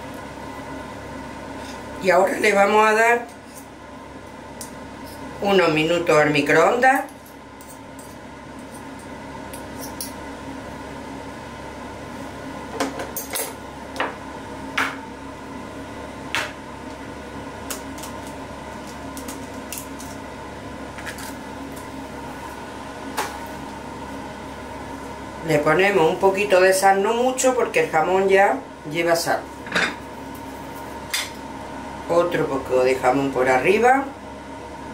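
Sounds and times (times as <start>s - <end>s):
steady hum: 0.0s - 34.9s.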